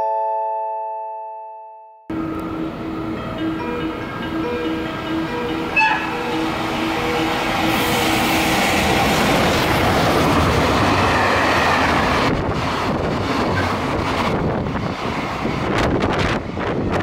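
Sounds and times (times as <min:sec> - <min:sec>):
train horn: 0:05.3 - 0:08.9, 0:10.8 - 0:12.2
wind buffeting microphone: 0:06.4 - 0:17.0.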